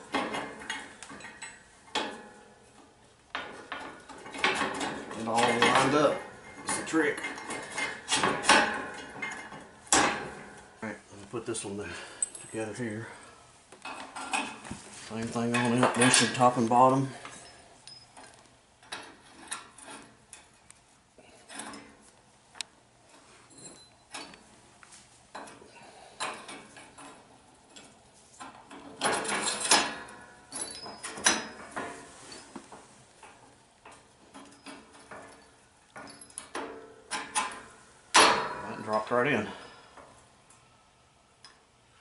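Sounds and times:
metal parts clinking and knocking: 0:26.2 - 0:32.5, 0:33.2 - 0:39.1.

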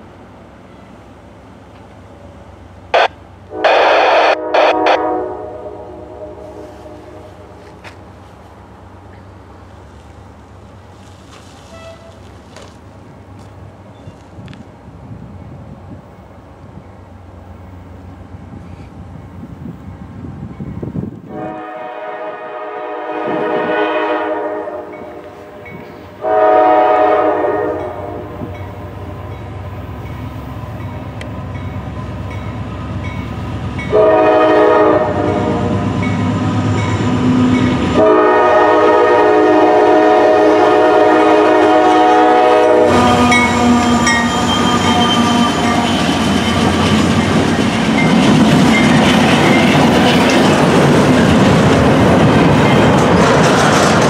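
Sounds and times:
locomotive air horn blasts: 0:03.0 - 0:07.7, 0:11.6 - 0:12.3, 0:21.3 - 0:29.0, 0:33.9 - 0:35.8, 0:37.9 - 0:46.0
train wheels clacking on rails: 0:42.9 - 0:54.0.

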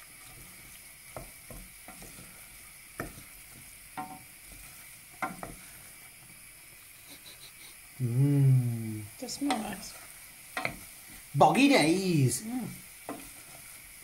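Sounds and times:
wooden spoon scraping a pan: 0:00.0 - 0:06.1, 0:12.7 - 0:14.0
peppers sizzling in a pan: 0:00.0 - 0:14.0.

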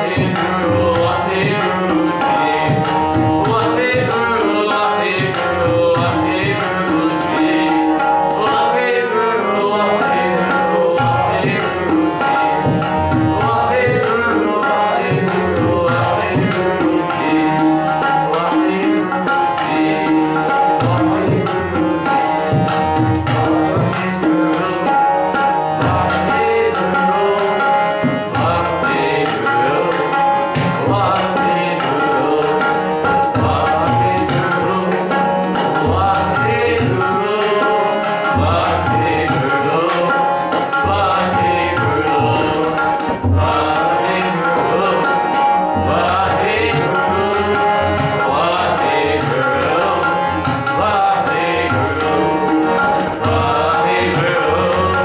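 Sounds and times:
man singing a hymn: 0:00.0 - 0:12.2, 0:13.3 - 0:22.4, 0:25.8 - 0:55.0
harmonium: 0:00.0 - 0:55.0
tabla: 0:00.0 - 0:55.0.

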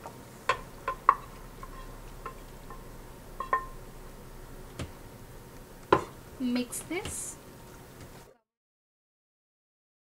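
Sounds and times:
pan clinking on pot rim: 0:00.5 - 0:03.8
spatula knocking on frying pan: 0:00.5 - 0:03.9, 0:04.7 - 0:05.0, 0:05.9 - 0:06.2.

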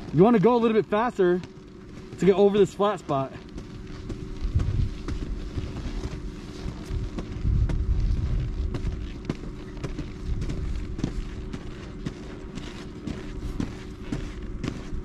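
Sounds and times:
snow crunching: 0:00.0 - 0:15.0
wind rumble on microphone: 0:04.0 - 0:11.7.

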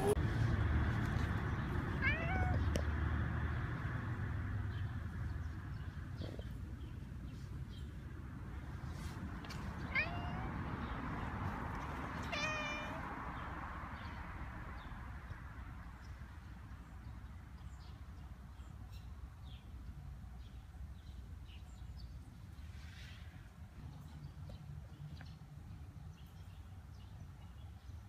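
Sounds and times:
faint outdoor background: 0:00.0 - 0:28.0
cat meowing: 0:02.0 - 0:02.7, 0:09.9 - 0:10.5, 0:12.2 - 0:13.0.

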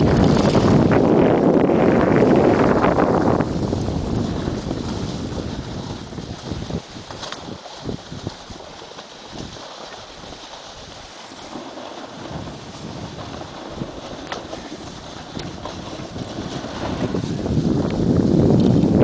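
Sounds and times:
wind buffeting microphone: 0:00.0 - 0:19.0
skis hissing over snow: 0:03.5 - 0:18.2.

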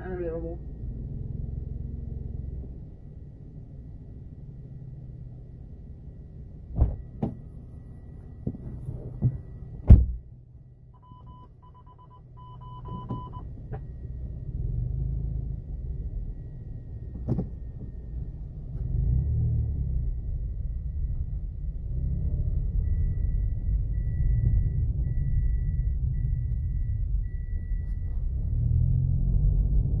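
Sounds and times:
car engine rumble: 0:00.0 - 0:30.0
high beeps: 0:11.0 - 0:13.5, 0:22.3 - 0:28.5.

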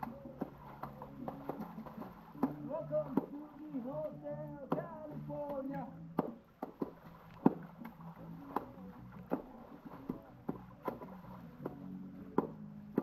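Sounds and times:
hands slapping pool water: 0:00.0 - 0:13.0.

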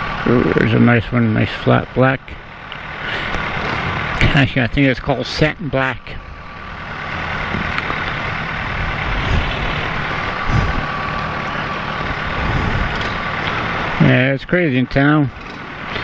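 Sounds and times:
motorcycle engine riding off: 0:02.6 - 0:04.9, 0:06.4 - 0:14.3, 0:15.2 - 0:16.0
wind rushing over microphone: 0:08.6 - 0:11.0, 0:12.0 - 0:13.2.

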